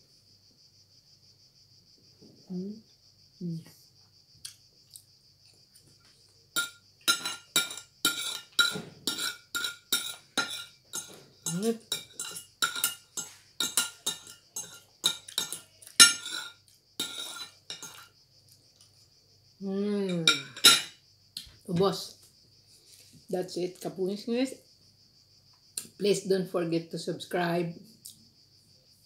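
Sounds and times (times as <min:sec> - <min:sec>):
cutlery clinking on a ceramic plate: 0:06.6 - 0:18.1, 0:20.1 - 0:21.0.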